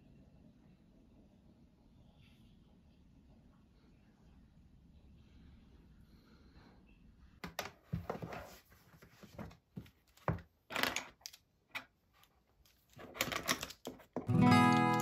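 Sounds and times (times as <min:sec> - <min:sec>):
faint steady hum: 0:00.0 - 0:07.7.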